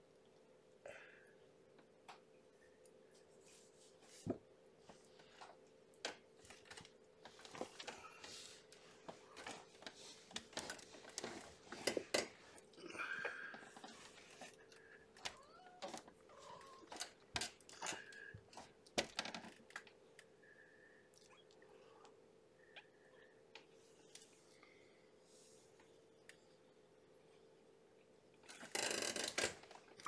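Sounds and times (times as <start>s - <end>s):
faint steady hum: 0.0s - 30.0s
soft rustling on fabric bedding: 3.0s - 5.4s.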